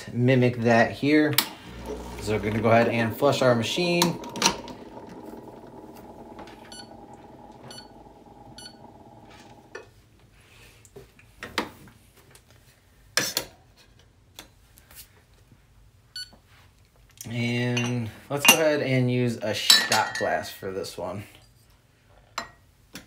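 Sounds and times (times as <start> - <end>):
espresso machine pump running: 1.2 - 9.8.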